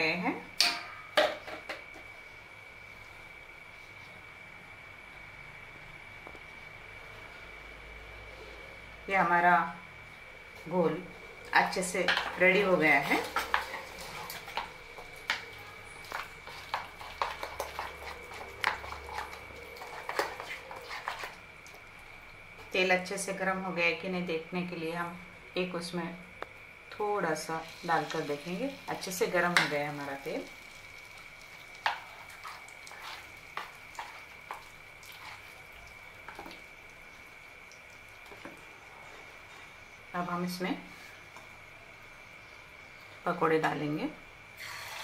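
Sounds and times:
hot oil crackling and popping: 10.5s - 22.8s, 26.3s - 40.1s.

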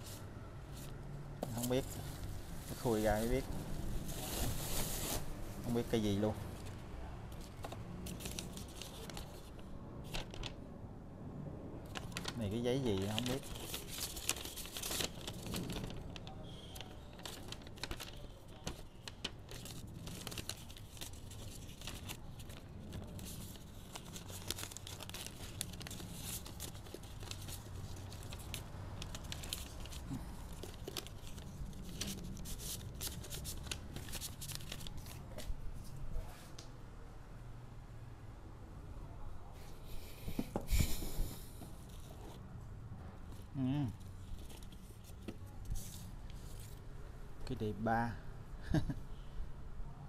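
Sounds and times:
paper crinkling and rustling: 0.0s - 10.6s, 11.8s - 36.0s, 44.1s - 46.8s.

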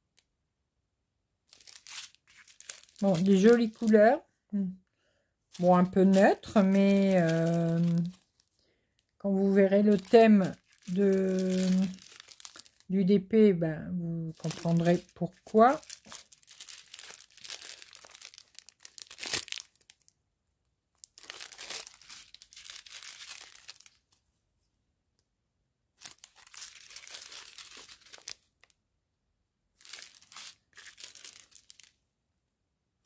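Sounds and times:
plastic sachets crinkling: 1.5s - 4.2s, 5.5s - 13.2s, 14.3s - 20.1s, 21.0s - 24.1s, 26.0s - 28.8s, 29.8s - 32.0s.

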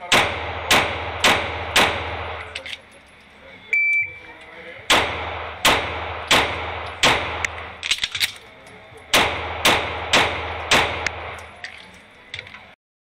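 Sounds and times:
pistol shots echoing indoors: 0.0s - 2.6s, 4.9s - 8.2s, 9.1s - 11.5s
reload clicks and clacks: 0.1s - 2.9s, 4.9s - 12.6s.

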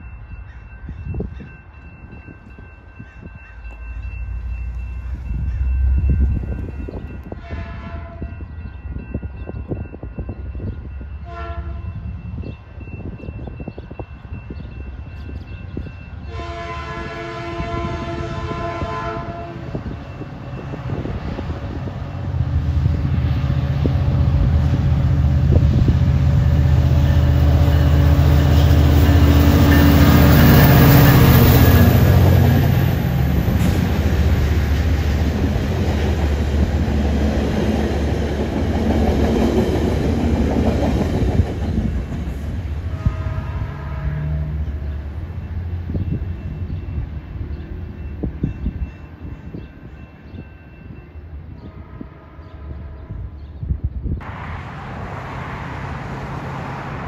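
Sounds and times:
diesel locomotive engine: 0.0s - 57.0s
locomotive horn: 7.3s - 8.4s, 11.2s - 12.0s, 16.3s - 19.9s, 42.8s - 44.6s, 51.6s - 53.4s.

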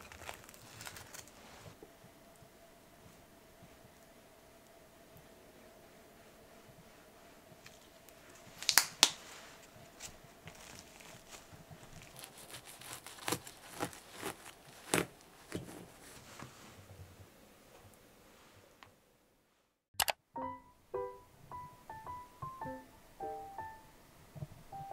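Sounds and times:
crisp crunches of knife cutting: 0.0s - 1.5s, 10.0s - 15.6s
sharp clicks: 20.0s - 20.2s.

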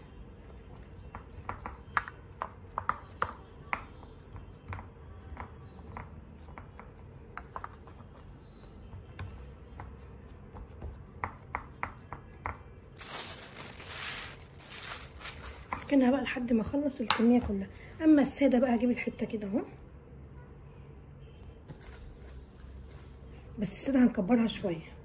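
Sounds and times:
hands tapping dough in metal pan: 0.6s - 12.8s
plastic sheeting crinkling: 13.0s - 15.8s.

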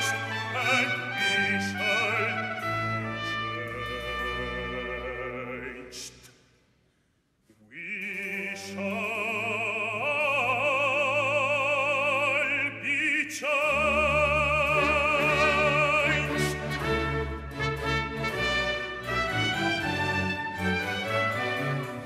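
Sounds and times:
deep orchestral bass: 0.0s - 6.2s, 8.6s - 22.0s
orchestra playing: 0.0s - 6.2s, 13.4s - 22.0s
baritone singing with vibrato: 0.0s - 6.3s, 7.6s - 21.8s.

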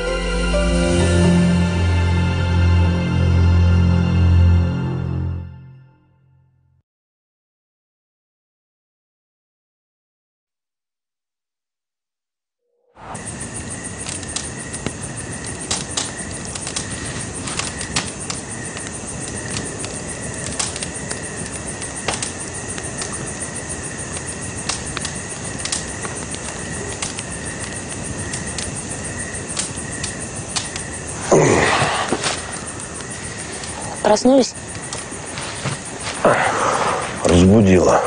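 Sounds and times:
campfire crackling: 13.0s - 38.0s
crickets chirring: 13.0s - 38.0s.

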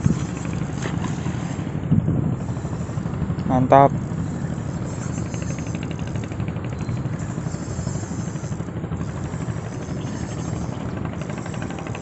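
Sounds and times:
fishing reel ticking: 0.0s - 1.5s, 4.1s - 12.0s
steady low rumble: 0.0s - 12.0s.

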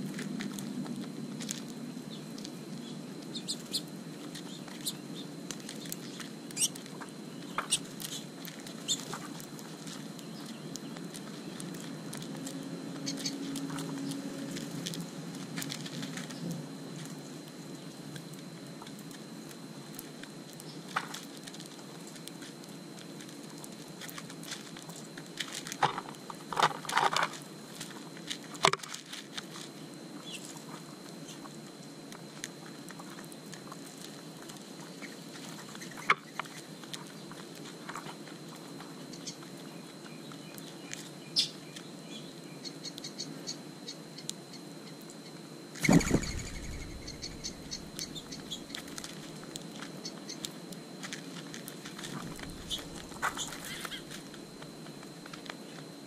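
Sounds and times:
doves pecking plastic saucer: 3.3s - 17.4s, 45.8s - 55.8s
rustling: 45.8s - 49.9s, 51.0s - 55.5s.

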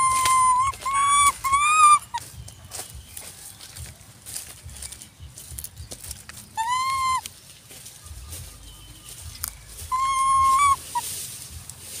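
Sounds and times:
macaque coo calls: 0.0s - 2.2s, 6.6s - 7.2s, 9.9s - 11.0s.

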